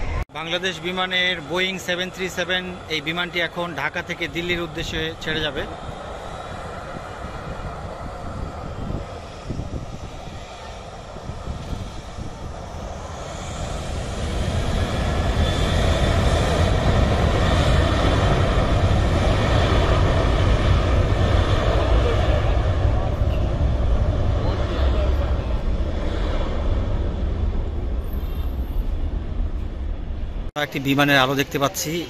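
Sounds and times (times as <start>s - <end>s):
jet engines rumbling: 0.0s - 32.0s.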